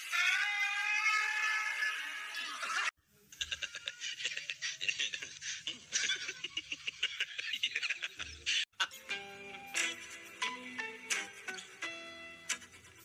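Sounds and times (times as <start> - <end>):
woman laughing hard: 2.6 - 8.7.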